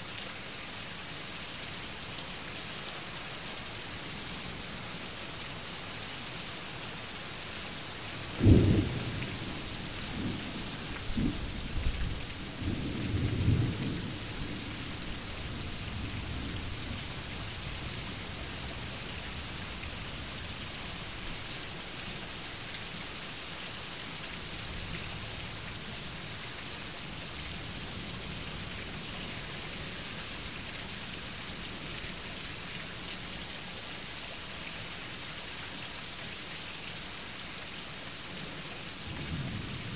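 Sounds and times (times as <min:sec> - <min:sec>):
heavy rain: 0:00.0 - 0:39.9
rolling thunder: 0:08.4 - 0:15.0.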